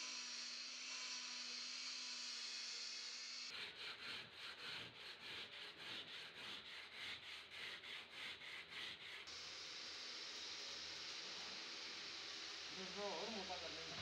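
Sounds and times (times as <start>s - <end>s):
sandpaper rubbing on panel: 3.5s - 9.3s
steady hiss: 9.3s - 14.0s.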